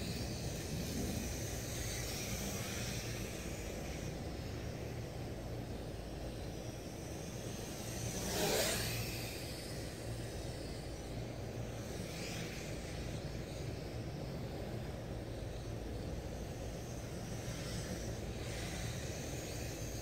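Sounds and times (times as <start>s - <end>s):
drone propellers buzzing: 0.0s - 20.0s.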